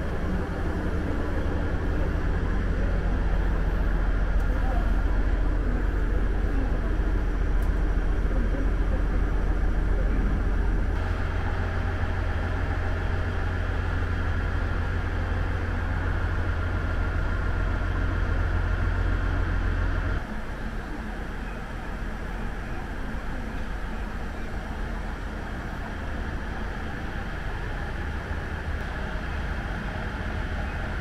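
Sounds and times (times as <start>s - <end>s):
diesel railcar engine idling: 0.0s - 31.0s.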